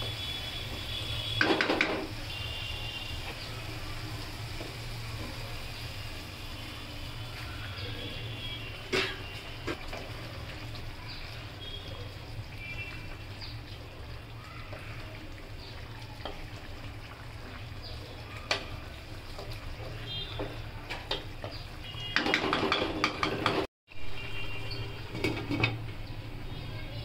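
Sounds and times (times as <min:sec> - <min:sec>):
spatula knocking against pan: 0:22.2 - 0:23.7.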